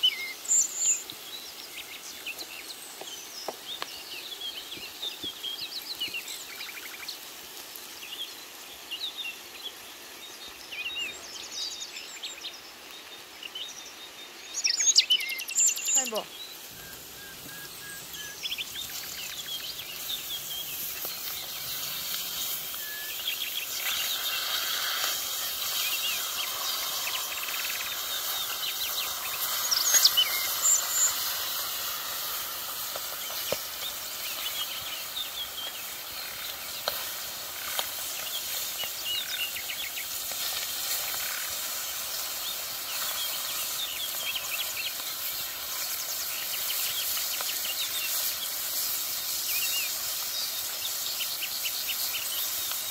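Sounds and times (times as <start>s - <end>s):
fish sizzling in oil: 0.0s - 12.1s, 15.6s - 52.9s
birds chirping: 0.0s - 52.9s.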